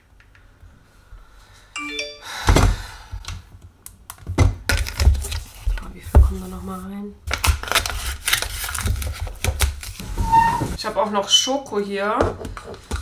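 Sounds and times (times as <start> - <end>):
descending electronic chime: 1.8 - 2.5.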